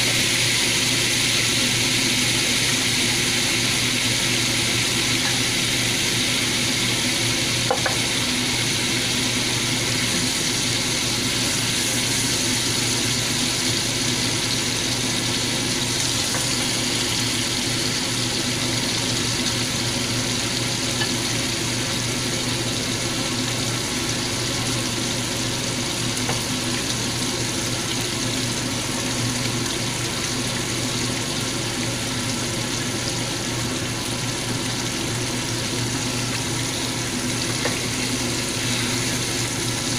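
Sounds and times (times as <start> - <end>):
steaks sizzling in a pan: 0.0 - 24.8, 32.6 - 39.9.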